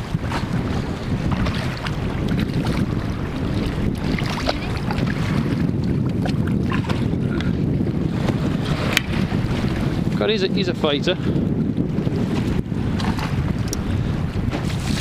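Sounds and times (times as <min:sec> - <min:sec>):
water lapping against boat: 0:00.0 - 0:15.0
wind buffeting microphone: 0:00.0 - 0:15.0.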